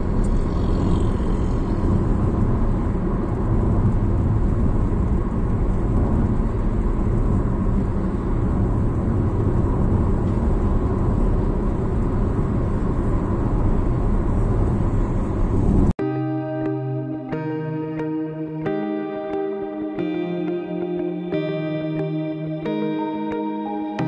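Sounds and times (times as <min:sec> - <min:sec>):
car road noise from inside: 0:00.0 - 0:16.0.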